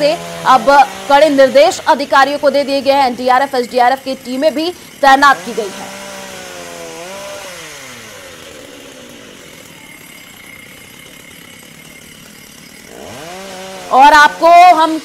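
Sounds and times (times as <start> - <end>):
chainsaw engine revving: 0.0 - 15.0.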